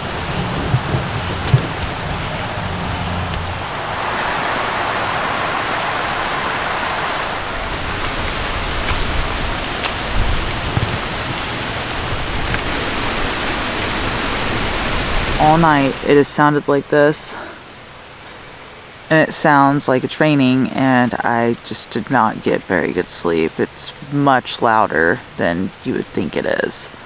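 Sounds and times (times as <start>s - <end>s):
leaves pattering down: 0.0s - 15.2s
wind through dry leaves: 0.0s - 19.1s.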